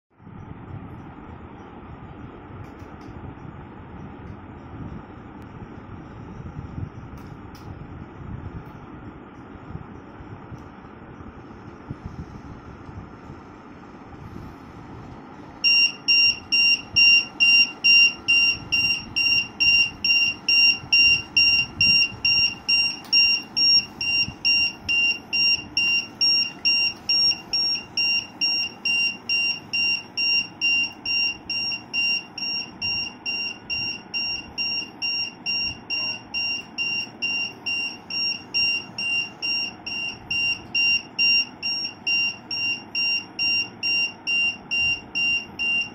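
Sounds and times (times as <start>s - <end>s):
high warning buzzer beeps: 15.6s - 45.9s.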